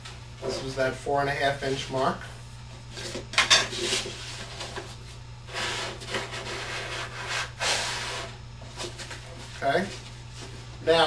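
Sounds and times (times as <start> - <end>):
cardboard rubbing and rustling: 3.0 - 10.6.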